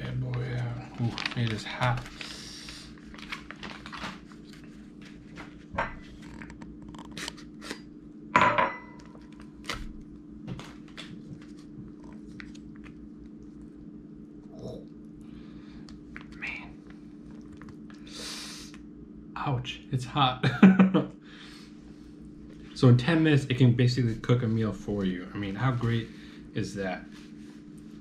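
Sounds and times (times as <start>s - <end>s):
steady low hum: 0.0s - 28.0s
foil pouch crinkling and tearing: 0.3s - 5.1s.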